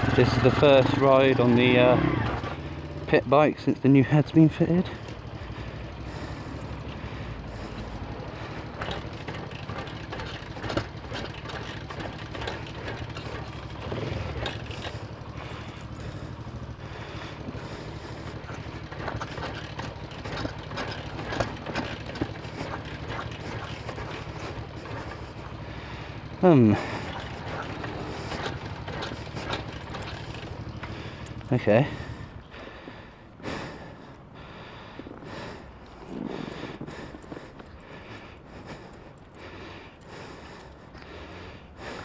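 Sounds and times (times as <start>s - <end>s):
motorbike engine idling: 0.0s - 42.0s.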